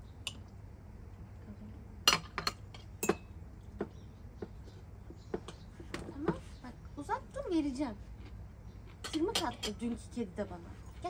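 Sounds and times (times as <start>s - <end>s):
low steady hum: 0.0s - 11.0s
tableware clinking: 2.1s - 3.3s.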